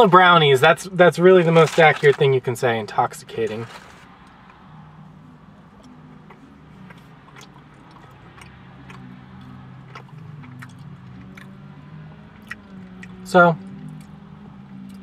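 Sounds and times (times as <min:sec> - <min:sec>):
person chewing: 0:05.8 - 0:11.5, 0:12.4 - 0:13.2
mouth clicks and smacks: 0:05.8 - 0:11.6, 0:12.4 - 0:13.2.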